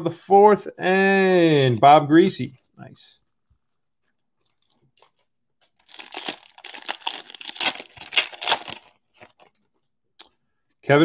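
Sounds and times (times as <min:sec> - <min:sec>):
foil wrapper crinkling and tearing: 0:04.4 - 0:09.5.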